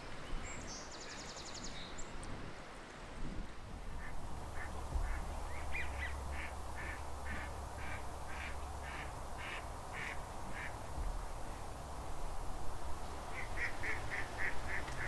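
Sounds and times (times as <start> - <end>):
duck quacking: 4.0 - 10.7, 13.4 - 15.0.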